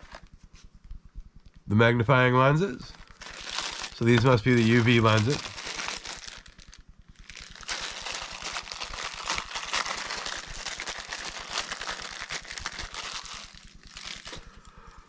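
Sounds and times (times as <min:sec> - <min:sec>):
plastic bag crinkling: 0:00.0 - 0:00.2, 0:02.9 - 0:14.7.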